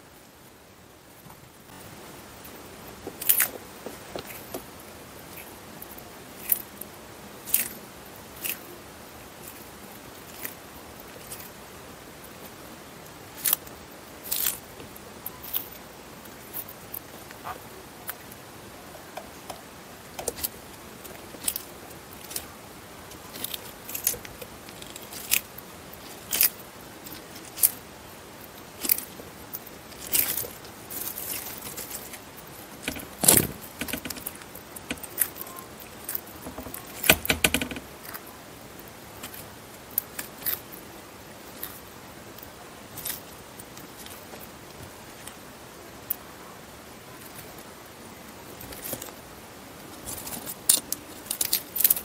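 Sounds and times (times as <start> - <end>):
tortoise crunching leaves: 2.4 - 18.5, 20.1 - 46.2, 48.4 - 52.0.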